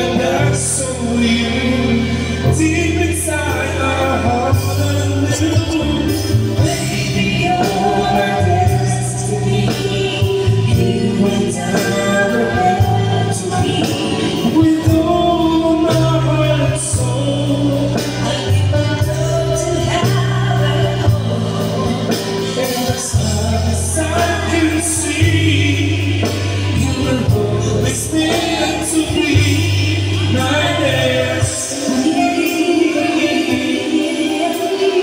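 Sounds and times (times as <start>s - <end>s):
backing track with bass line: 0.0s - 35.0s
man and woman singing: 0.0s - 35.0s.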